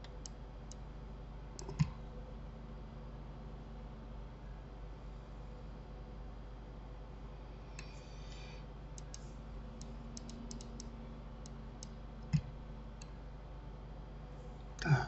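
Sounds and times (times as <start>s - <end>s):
faint steady hum: 0.0s - 15.0s
mouse and keyboard clicks: 9.0s - 12.5s.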